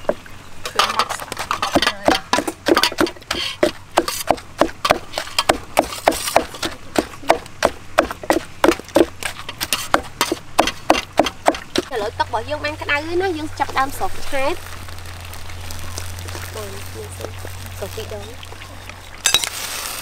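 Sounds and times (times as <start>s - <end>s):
wooden pestle pounding in mortar: 1.4s - 11.9s.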